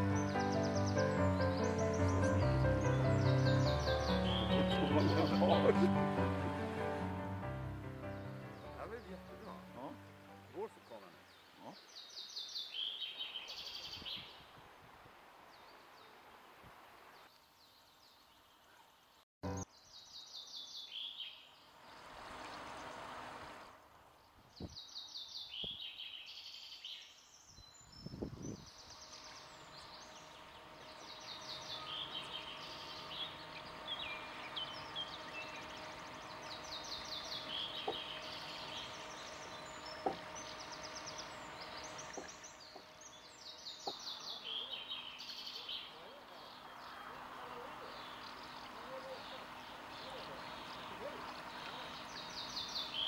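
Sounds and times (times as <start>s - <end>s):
songbirds trilling: 0.0s - 14.4s, 19.5s - 53.0s
faint steady hum: 28.7s - 53.0s
faint knocks: 39.9s - 40.6s.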